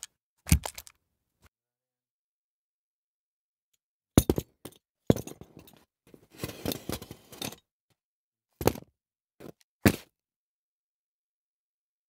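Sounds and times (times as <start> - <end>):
props knocking and clinking: 4.2 - 5.9.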